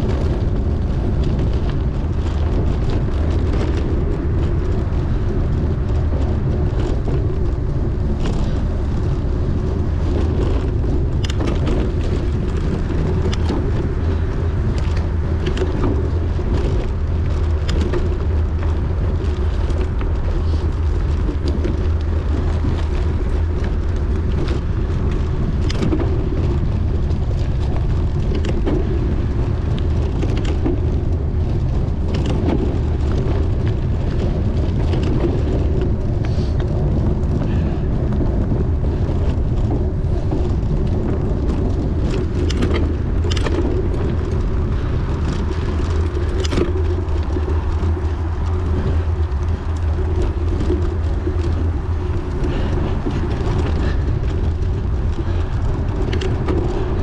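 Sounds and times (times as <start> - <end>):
bicycle clicks and rattles: 0.0 - 57.0
wind rumbling on microphone: 0.0 - 57.0.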